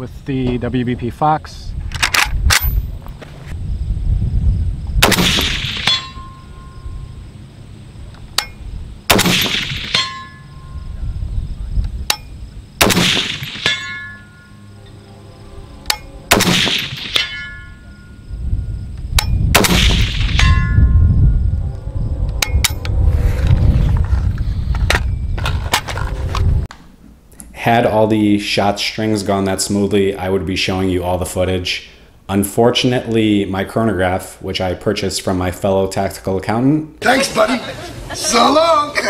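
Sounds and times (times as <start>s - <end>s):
rifle shots echoing: 5.0s - 6.1s, 9.1s - 10.2s, 12.8s - 14.0s, 16.3s - 17.4s, 19.5s - 20.6s
short ringing tone: 5.9s - 7.2s, 17.2s - 18.3s.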